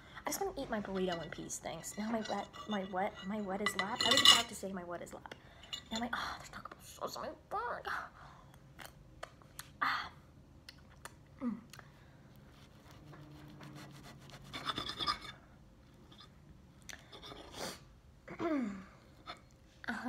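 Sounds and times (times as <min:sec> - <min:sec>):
fork scraping on ceramic plate: 0:12.8 - 0:15.4.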